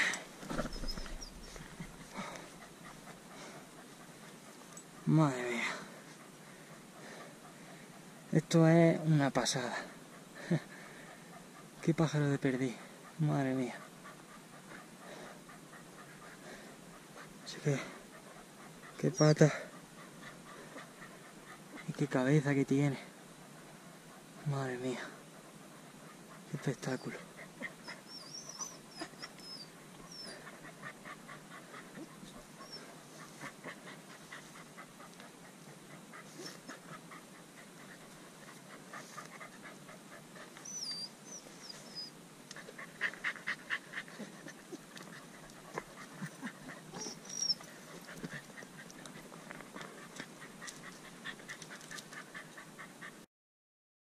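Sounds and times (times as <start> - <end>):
dog panting: 0.0 - 53.3.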